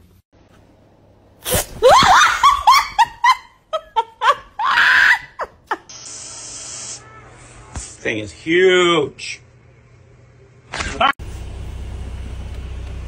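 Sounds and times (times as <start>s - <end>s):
person shrieking and laughing: 1.8s - 5.9s
spray can hissing: 5.8s - 7.0s.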